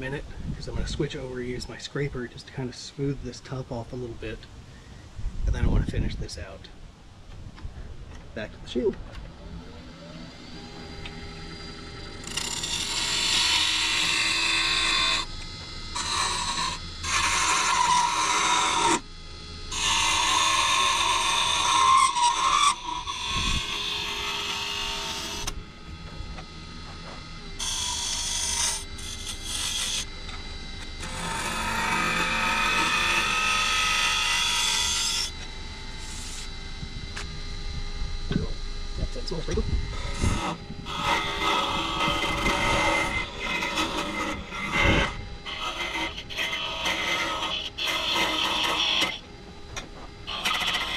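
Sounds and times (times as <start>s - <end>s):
lathe humming: 6.7s - 50.9s
scraper on spinning wood: 40.9s - 49.2s.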